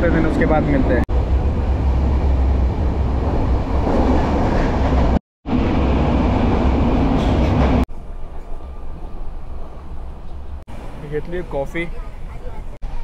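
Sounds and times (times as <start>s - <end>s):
train wheels rumbling: 0.0s - 11.7s.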